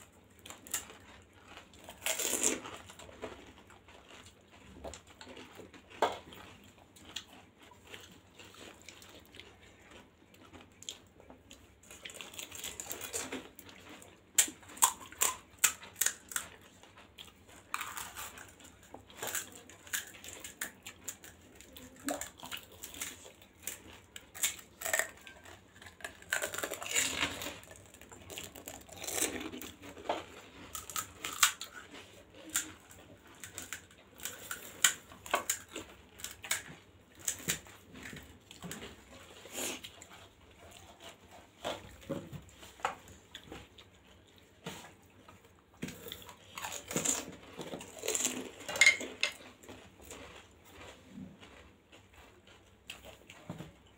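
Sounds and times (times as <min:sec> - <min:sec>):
wet chewing: 0:00.0 - 0:53.9
puri shells crunching: 0:17.7 - 0:30.1, 0:30.7 - 0:31.8, 0:45.9 - 0:49.4.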